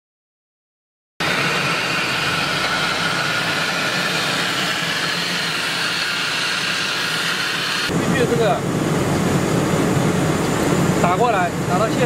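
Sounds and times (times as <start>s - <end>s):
hiss of air: 1.2s - 7.9s
air compressor hum: 1.2s - 12.0s.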